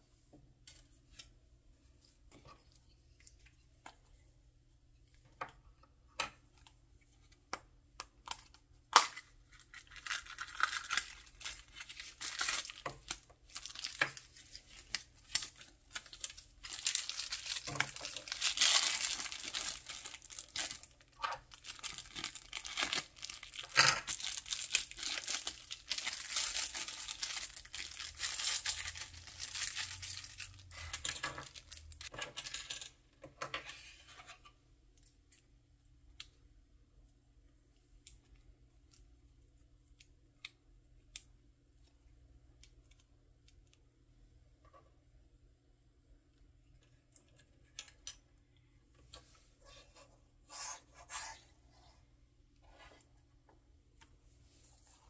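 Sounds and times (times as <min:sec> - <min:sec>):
plastic bag crinkling and tearing: 0:09.5 - 0:30.7.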